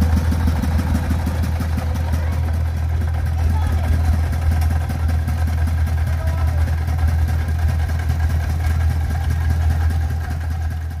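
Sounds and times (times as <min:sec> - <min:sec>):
small engine idling chugging: 0:00.0 - 0:11.0.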